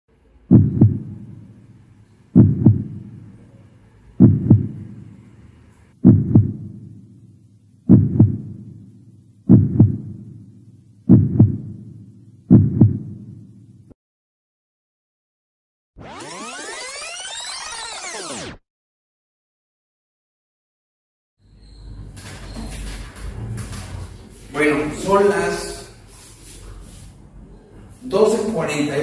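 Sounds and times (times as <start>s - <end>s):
heartbeat double thumps: 0.5s - 1.4s, 2.4s - 3.2s, 4.2s - 5.0s, 6.0s - 7.0s, 7.9s - 8.8s, 9.5s - 10.4s, 11.1s - 13.4s.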